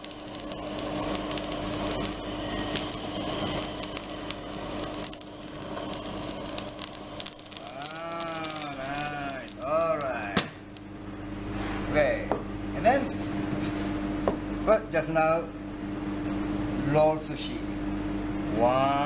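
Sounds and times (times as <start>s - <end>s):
blowtorch flame hissing: 0.0s - 10.8s
sauce crackling: 0.0s - 10.9s.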